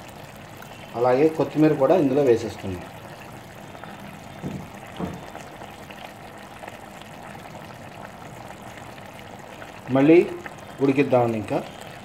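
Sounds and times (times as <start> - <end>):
curry bubbling in a pot: 0.0 - 12.0.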